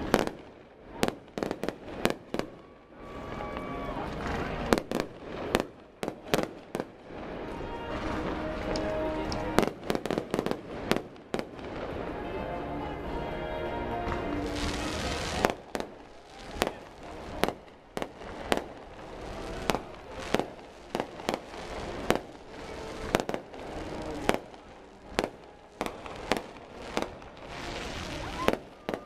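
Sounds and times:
fireworks bangs: 0:00.0 - 0:29.0.

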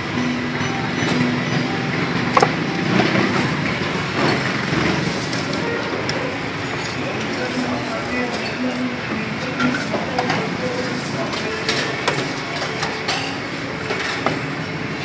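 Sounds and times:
murmur of voices: 0:00.0 - 0:15.0
traffic noise: 0:00.0 - 0:15.0.

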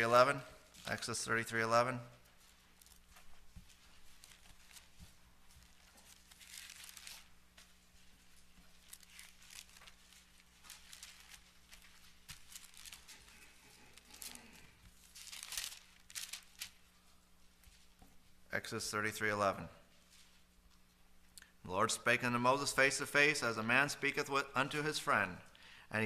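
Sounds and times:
paper pages rustling: 0:02.2 - 0:16.9.

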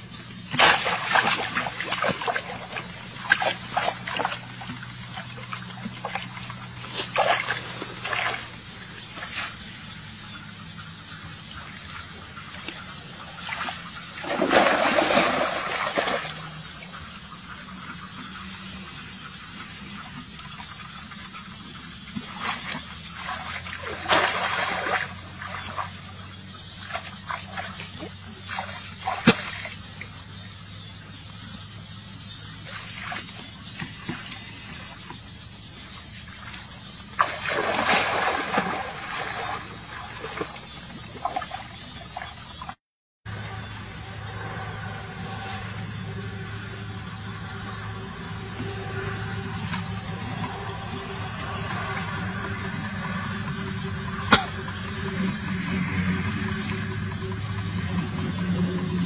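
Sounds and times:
water splashing from wading: 0:00.5 - 0:18.1, 0:19.9 - 0:30.5, 0:32.4 - 0:42.8.

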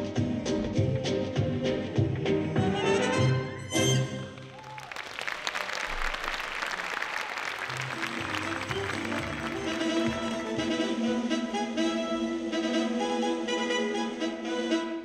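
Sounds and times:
brassy swing music: 0:00.0 - 0:04.4, 0:07.7 - 0:15.0
audience applause: 0:04.4 - 0:10.8.

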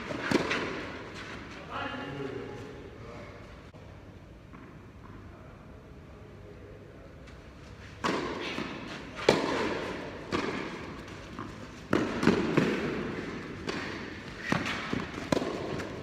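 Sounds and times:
tennis ball knocks with echo: 0:08.0 - 0:16.0.

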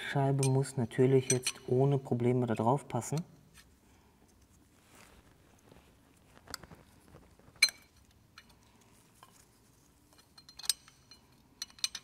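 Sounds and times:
light metallic clinks: 0:00.4 - 0:01.7, 0:10.1 - 0:12.0.

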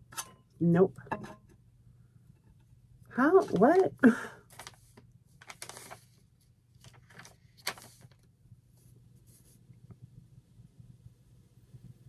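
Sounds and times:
metal rack parts rustling: 0:00.0 - 0:00.4
faint low hum: 0:00.1 - 0:12.0.

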